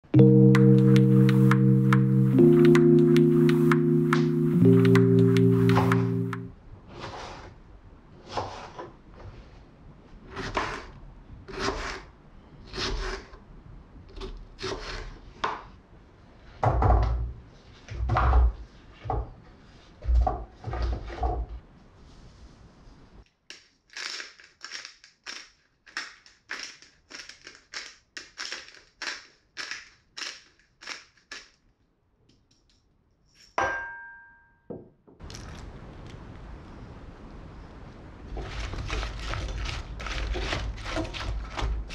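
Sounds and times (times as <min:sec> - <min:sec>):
pepper grinder crunching: 0:23.5 - 0:31.6, 0:38.4 - 0:41.9.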